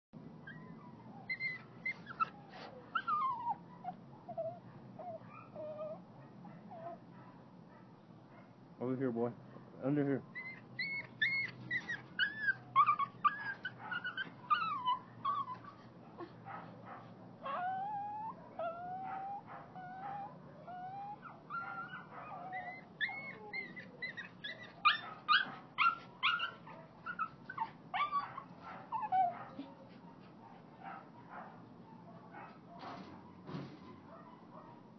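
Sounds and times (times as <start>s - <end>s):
dog whining and whimpering: 0.4s - 6.0s, 6.7s - 7.0s, 10.4s - 16.4s, 17.4s - 29.8s.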